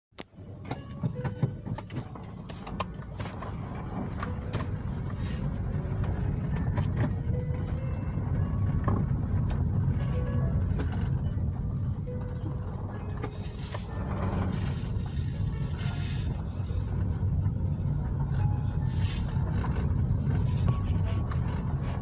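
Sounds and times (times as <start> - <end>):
engine and tyre rumble: 0.1 - 22.0.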